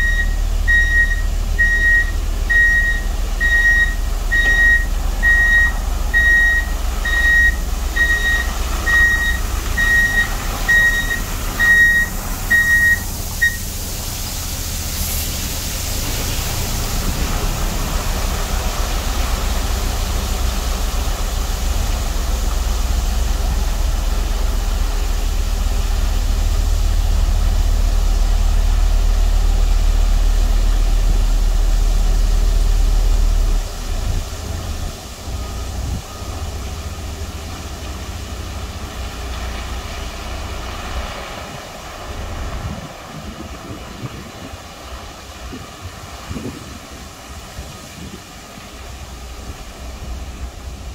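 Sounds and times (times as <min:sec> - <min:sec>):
truck reversing beeper: 0:00.0 - 0:31.0, 0:31.8 - 0:41.4
truck engine rumbling: 0:00.0 - 0:50.9
water spraying onto gravel: 0:00.4 - 0:50.9.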